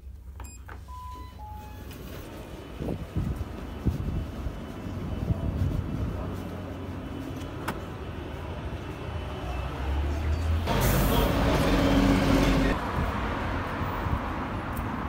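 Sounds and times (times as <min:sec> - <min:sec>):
street traffic rumbling: 0:01.2 - 0:15.0
vehicle passing close by: 0:09.1 - 0:14.6.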